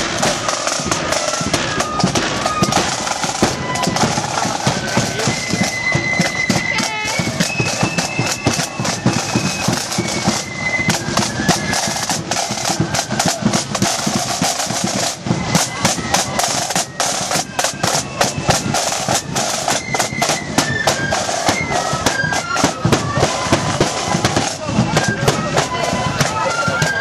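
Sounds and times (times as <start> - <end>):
flutes playing tune: 0.0 - 27.0
snare drums rolling: 0.0 - 27.0.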